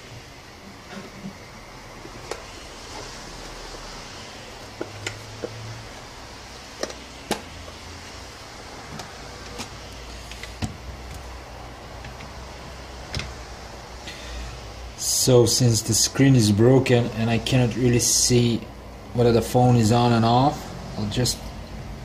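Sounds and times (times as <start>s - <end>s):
steady low hum: 0.0s - 22.0s
small tools clicking and tapping: 6.8s - 7.5s.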